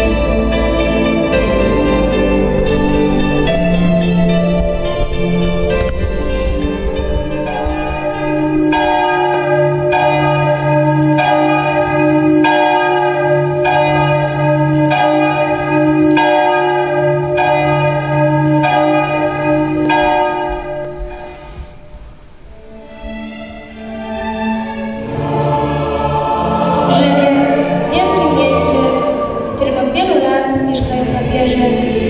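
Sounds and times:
large church bell tolling: 0.0s - 21.9s, 26.5s - 32.0s.

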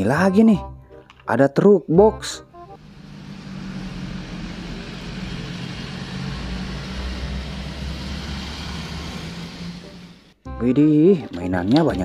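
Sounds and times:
traffic noise: 2.8s - 10.4s
truck engine and tyre rumble: 2.8s - 10.4s.

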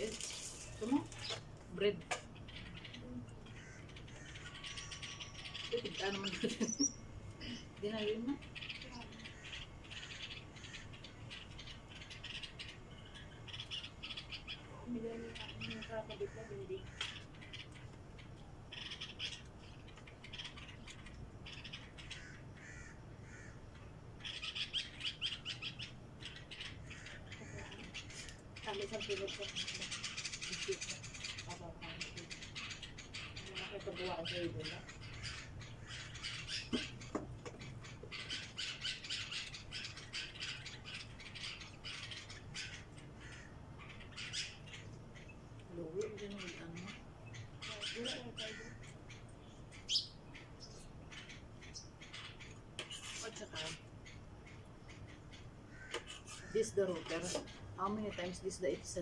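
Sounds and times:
small birds chirping: 0.0s - 59.0s
crow cawing: 3.4s - 5.3s, 9.2s - 11.0s, 16.1s - 17.3s, 21.9s - 23.8s, 26.8s - 28.4s, 42.0s - 43.6s, 47.8s - 49.0s, 55.7s - 56.8s.

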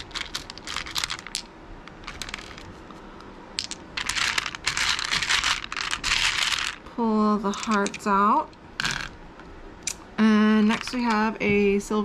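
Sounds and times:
beads clattering in plastic basket: 0.0s - 1.4s, 2.0s - 2.7s, 3.6s - 6.8s.

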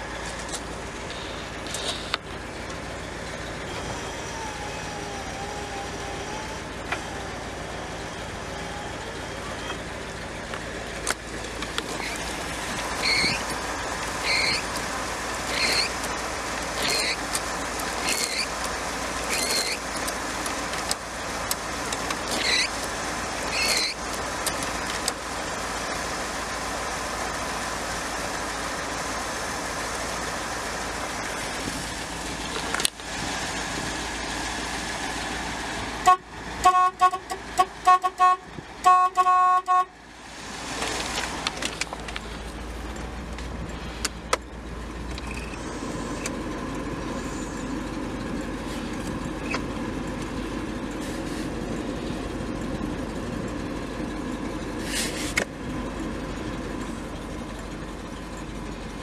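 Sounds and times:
car horn honks: 36.0s - 40.0s.

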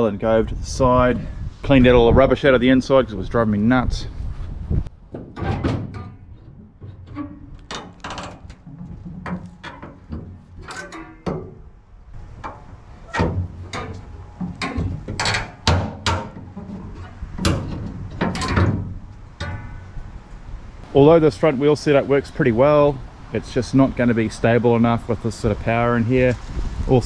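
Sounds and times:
metallic clunks from boat hull: 5.1s - 20.2s.

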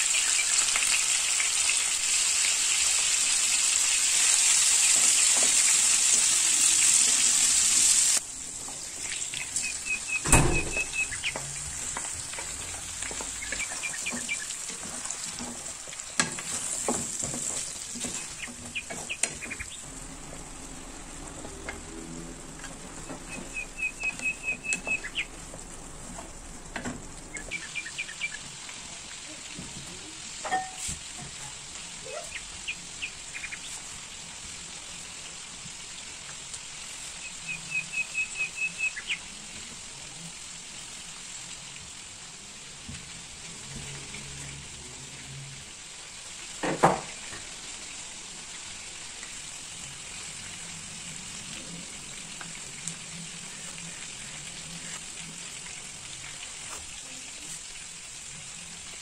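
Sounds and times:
food sizzling in a pan: 0.0s - 59.0s
spatula stirring and scraping: 11.4s - 19.4s.

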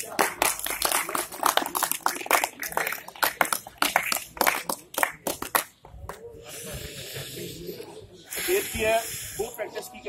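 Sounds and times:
group of people clapping: 0.0s - 6.2s.

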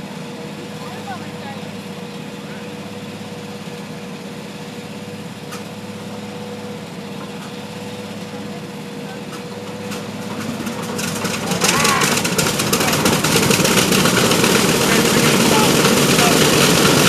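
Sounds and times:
steady mechanical hum: 0.0s - 17.0s
mid-pitched whine: 9.2s - 17.0s.

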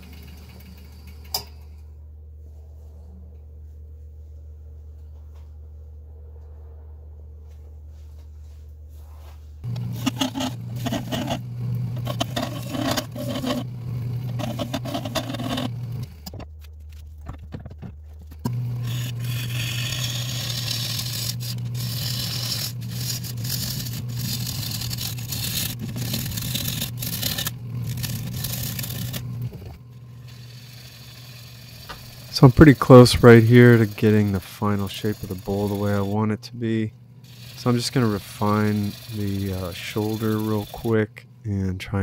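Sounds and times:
lathe humming: 9.6s - 16.4s, 18.4s - 41.1s
tool scraping spinning wood: 9.6s - 41.2s.

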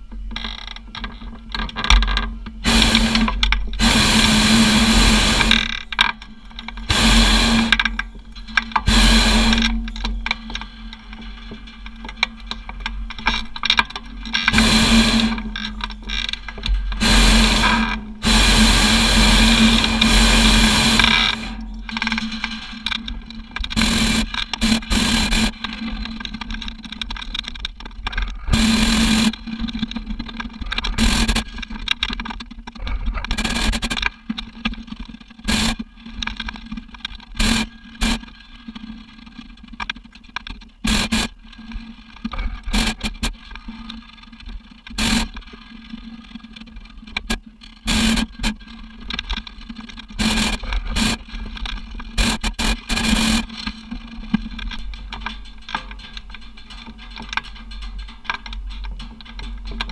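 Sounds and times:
steady low hum: 0.0s - 59.9s
propane burner blasts: 2.6s - 12.2s, 14.4s - 22.9s, 23.7s - 25.6s, 28.5s - 29.4s.

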